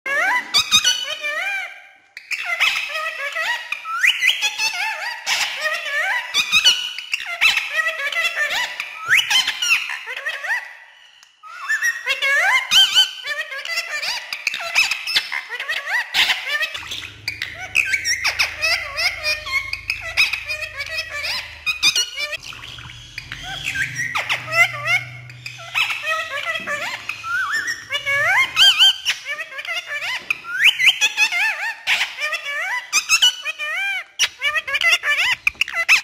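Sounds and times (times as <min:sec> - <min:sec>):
parakeet chattering: 0:11.8 - 0:36.0
parakeet mimicked talking: 0:12.0 - 0:30.2.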